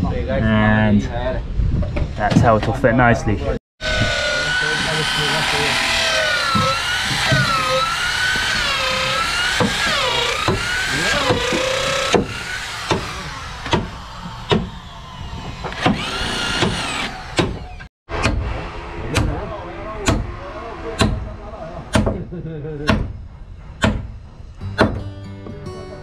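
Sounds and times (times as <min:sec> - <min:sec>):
electric drill boring into wood: 0:03.8 - 0:17.9
sharp knocks: 0:09.5 - 0:14.8, 0:15.4 - 0:18.5, 0:21.9 - 0:22.2, 0:23.8 - 0:24.2, 0:24.8 - 0:25.1.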